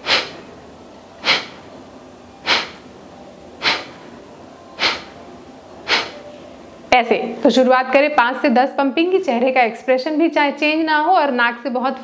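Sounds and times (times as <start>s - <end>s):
forced exhalations through nose: 0.0s - 0.5s, 1.2s - 1.7s, 2.4s - 2.8s, 3.6s - 4.1s, 4.8s - 5.2s, 5.8s - 6.2s.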